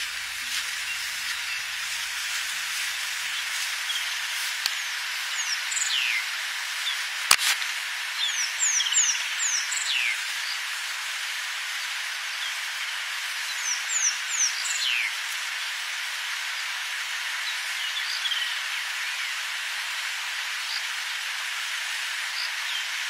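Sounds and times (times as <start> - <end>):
steady hiss: 0.0 - 23.0
sharp click: 7.3 - 7.7.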